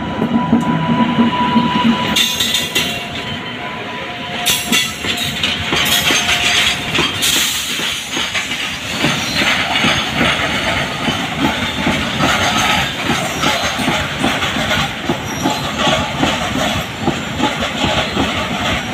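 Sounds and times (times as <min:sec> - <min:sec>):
train wheels clattering over rail joints: 0:02.1 - 0:03.3, 0:04.4 - 0:18.9.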